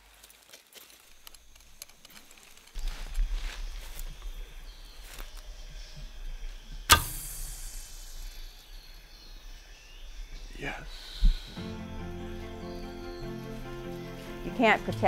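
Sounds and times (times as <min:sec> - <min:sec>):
arrow hiss in flight: 0:06.9 - 0:08.8
bow snap: 0:06.9 - 0:08.8.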